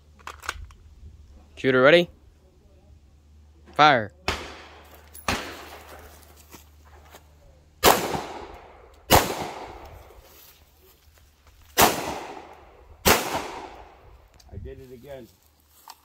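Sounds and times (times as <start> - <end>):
pistol shots echoing: 4.2 - 6.0, 7.8 - 9.8, 11.8 - 14.0.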